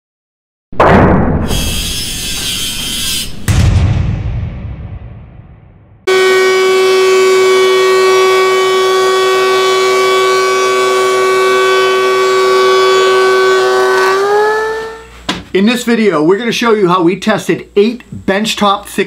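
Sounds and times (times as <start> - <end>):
thickness planer whine: 6.1 - 15.4.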